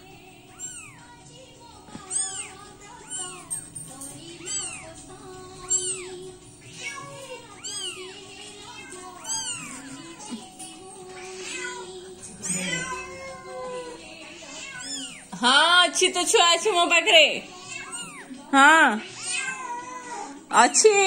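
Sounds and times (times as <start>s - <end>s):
background music: 0.0s - 21.0s
kitten mewing: 0.5s - 1.0s, 2.0s - 3.6s, 4.4s - 4.9s, 5.6s - 8.1s, 8.7s - 10.1s, 11.2s - 15.3s, 17.7s - 18.3s, 19.0s - 20.3s.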